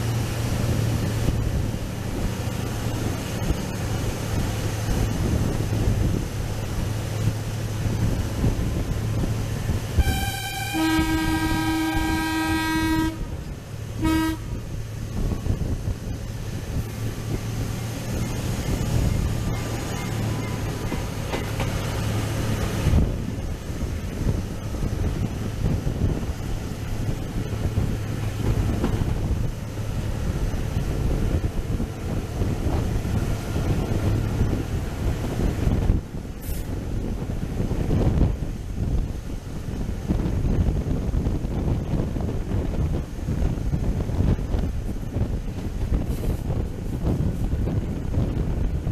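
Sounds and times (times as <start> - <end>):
locomotive engine hum: 0.0 - 48.9
rumble of running train: 0.0 - 48.9
wind buffeting microphone: 0.0 - 48.9
locomotive horn two-tone blast: 9.9 - 14.8.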